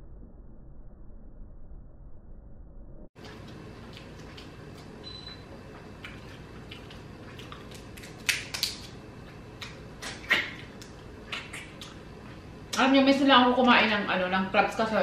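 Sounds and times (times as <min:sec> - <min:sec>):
crab shell cracking: 0:07.4 - 0:09.0.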